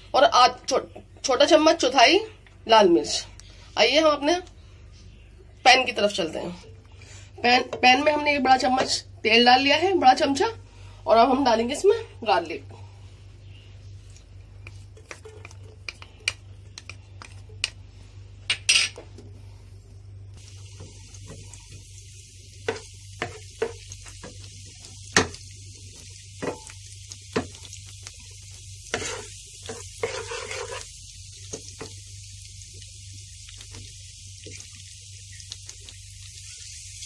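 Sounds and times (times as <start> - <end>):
garlic sizzling in oil: 5.6 - 12.6, 20.4 - 37.0
wooden spatula scraping pan: 28.9 - 30.9.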